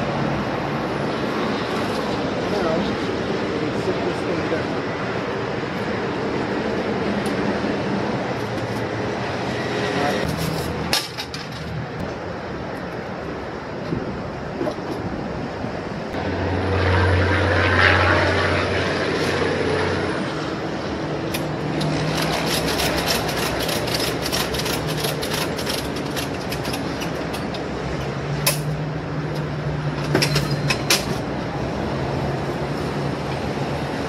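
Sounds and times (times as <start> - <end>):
steady engine hum: 0.0 - 34.0
ratchet strap clicking: 21.3 - 27.6.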